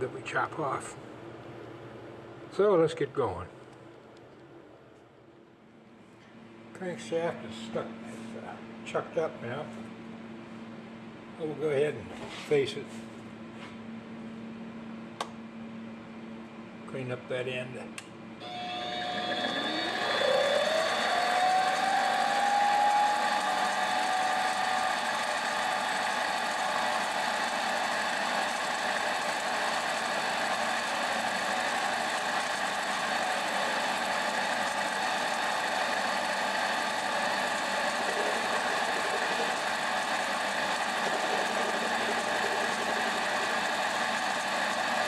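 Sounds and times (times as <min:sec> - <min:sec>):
lathe motor whining: 0:18.4 - 0:45.0.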